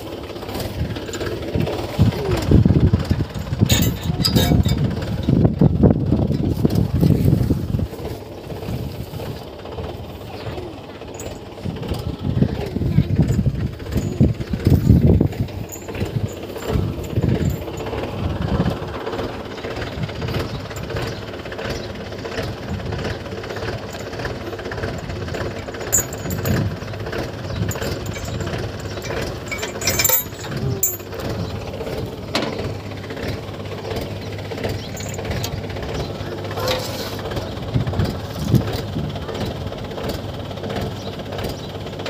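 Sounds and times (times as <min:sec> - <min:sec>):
diesel tractor engine idling: 0:00.0 - 0:42.0
chain clinking against metal: 0:03.0 - 0:05.3, 0:11.0 - 0:11.6, 0:13.2 - 0:18.2, 0:23.6 - 0:31.9, 0:34.8 - 0:35.6.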